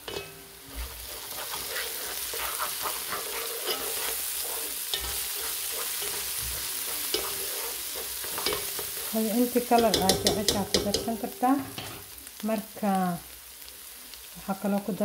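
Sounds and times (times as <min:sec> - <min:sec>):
vegetables sizzling in hot oil: 0:00.0 - 0:15.0
spatula scraping pot: 0:00.7 - 0:12.1.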